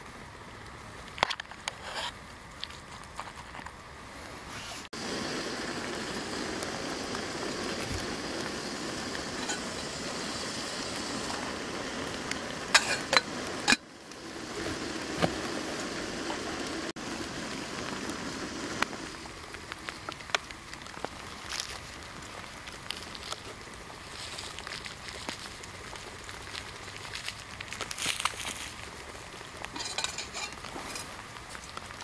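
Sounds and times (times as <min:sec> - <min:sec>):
water boiling in kettle: 0:05.0 - 0:32.0
kettle lid clinking: 0:12.7 - 0:13.8.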